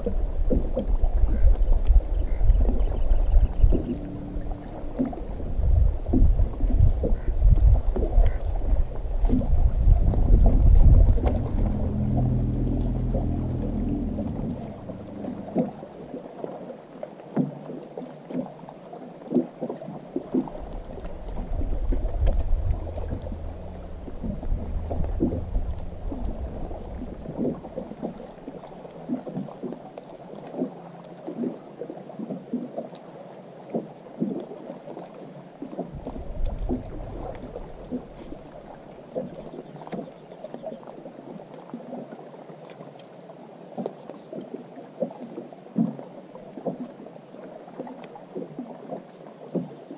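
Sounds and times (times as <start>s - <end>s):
wind rumble on microphone: 0.0s - 16.3s, 19.5s - 29.9s, 35.5s - 40.8s
small waves lapping against hull: 0.0s - 49.9s.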